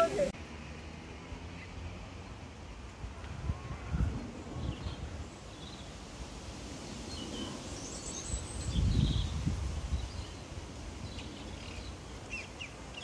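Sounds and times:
wind rumble on microphone: 0:03.0 - 0:12.1.

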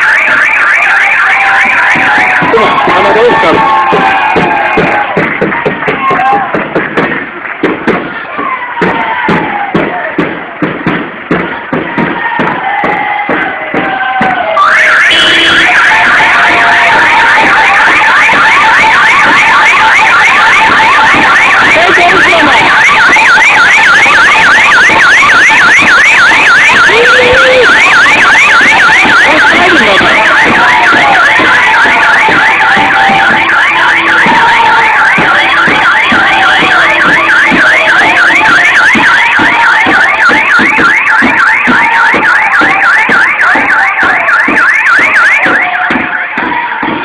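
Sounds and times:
electronic siren sweeping: 0:00.0 - 0:05.1, 0:14.5 - 0:46.1
people's voices: 0:00.0 - 0:47.0
steady thumping beat: 0:00.0 - 0:47.0
person shouting: 0:26.9 - 0:27.7.

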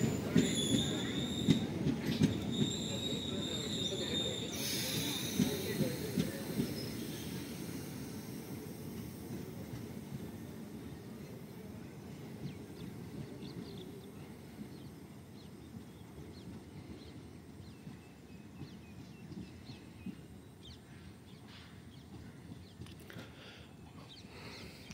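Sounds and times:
birds chirping: 0:00.0 - 0:24.9
train rumbling along track: 0:00.0 - 0:24.9.

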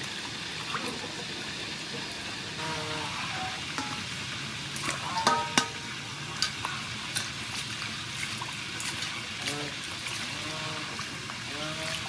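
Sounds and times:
water sloshing in steel bowl: 0:03.4 - 0:04.1, 0:04.8 - 0:12.0
knocks against metal bowl: 0:05.2 - 0:05.8.

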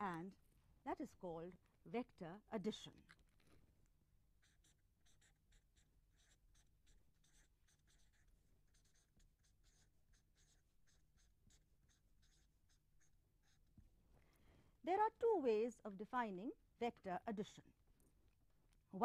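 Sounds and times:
pen scratching while writing: 0:04.4 - 0:13.7.

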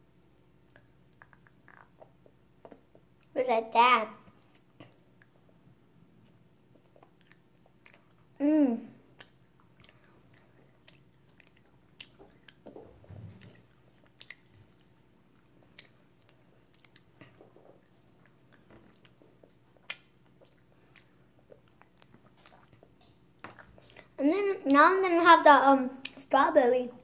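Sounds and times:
child chewing candy: 0:04.3 - 0:08.4, 0:09.0 - 0:24.2.

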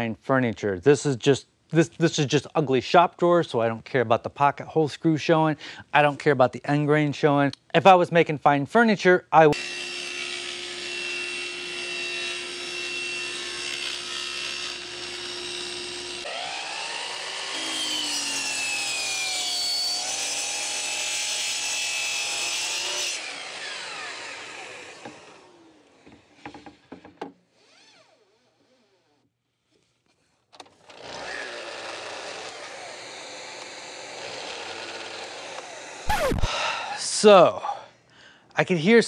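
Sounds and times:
miter saw cutting plywood: 0:09.6 - 0:26.8, 0:30.8 - 0:36.6
table saw cutting plywood: 0:09.6 - 0:26.8, 0:30.9 - 0:36.6.

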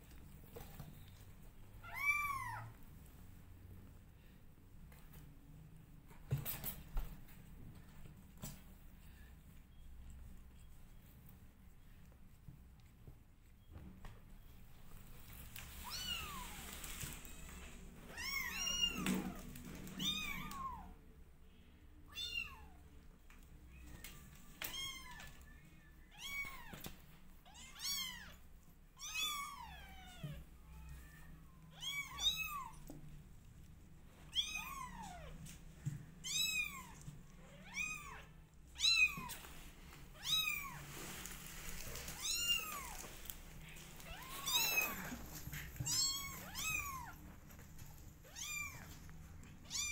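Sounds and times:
kittens meowing: 0:44.0 - 0:47.2.

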